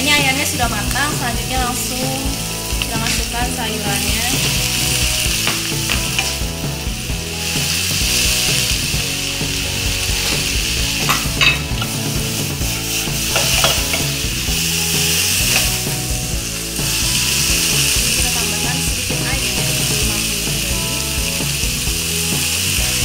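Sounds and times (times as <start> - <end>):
food sizzling in a wok: 0.0 - 23.0
spatula scraping a pan: 4.3 - 6.6, 10.0 - 16.2.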